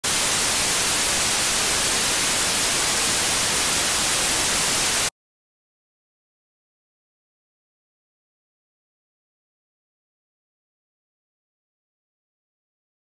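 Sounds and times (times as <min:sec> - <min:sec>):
static hiss: 0:00.0 - 0:05.1.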